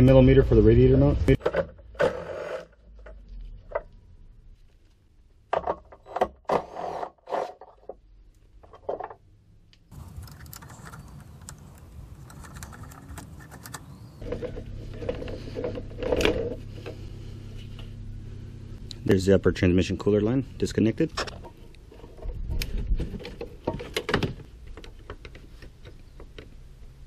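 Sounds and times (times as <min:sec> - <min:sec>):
steady hum: 0:14.2 - 0:23.1.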